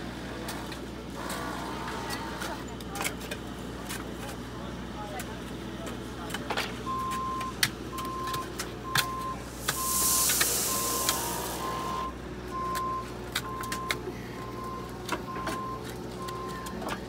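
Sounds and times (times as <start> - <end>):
reversing alarm beeping: 6.9 - 16.8
rush of hiss: 9.4 - 12.0.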